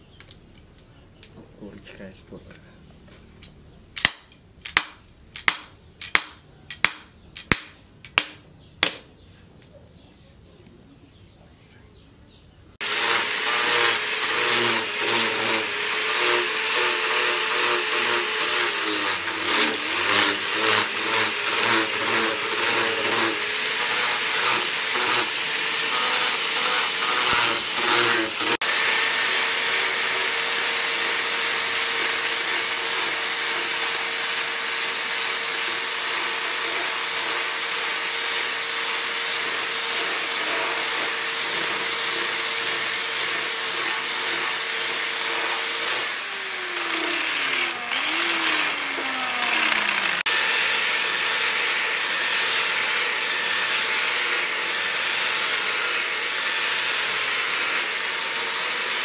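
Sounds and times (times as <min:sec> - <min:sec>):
angle grinder sanding wood: 0:12.8 - 0:59.0.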